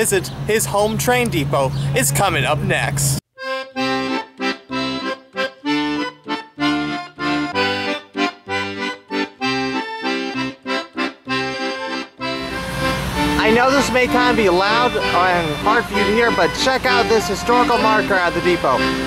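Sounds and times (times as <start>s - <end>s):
lively instrumental tune: 0.7s - 19.0s
pulsing bass line: 11.3s - 19.0s.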